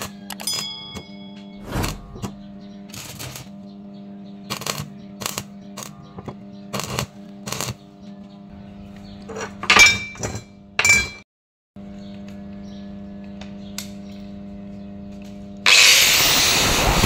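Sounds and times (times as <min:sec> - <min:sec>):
low hum: 0:00.0 - 0:09.5.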